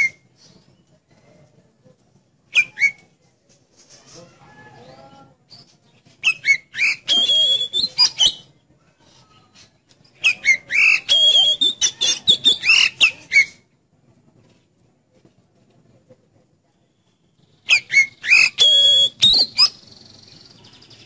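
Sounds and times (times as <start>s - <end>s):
bird whistling song: 0.0s - 0.7s, 2.5s - 3.1s, 4.8s - 8.5s, 10.2s - 13.6s, 17.5s - 21.0s.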